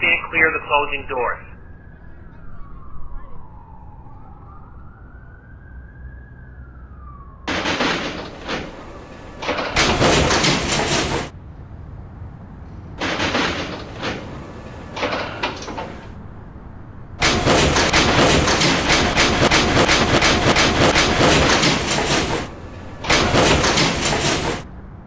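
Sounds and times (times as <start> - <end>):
subway train rumble: 0.0 - 4.1, 7.0 - 25.0
wheels clacking on rails: 7.5 - 11.4, 12.6 - 16.5, 17.1 - 25.0.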